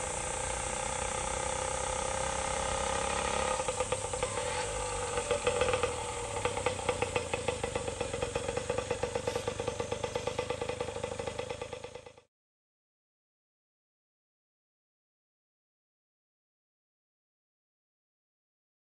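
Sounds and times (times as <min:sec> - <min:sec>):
two-stroke engine running: 0:00.0 - 0:12.3.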